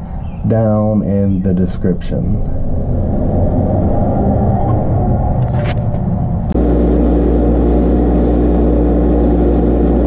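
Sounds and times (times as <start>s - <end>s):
motor hum: 6.4s - 10.0s.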